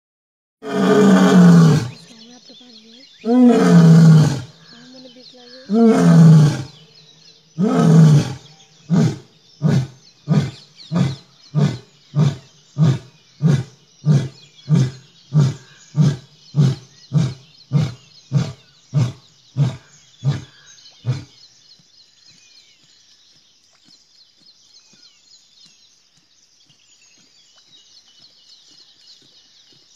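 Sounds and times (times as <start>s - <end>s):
lion roaring with deep grunts: 0.6s - 2.0s, 3.2s - 4.6s, 5.7s - 6.8s, 7.6s - 21.4s.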